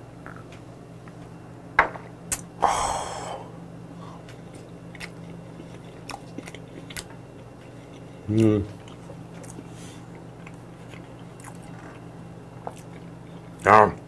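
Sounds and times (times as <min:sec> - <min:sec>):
man chewing: 0:04.1 - 0:13.7.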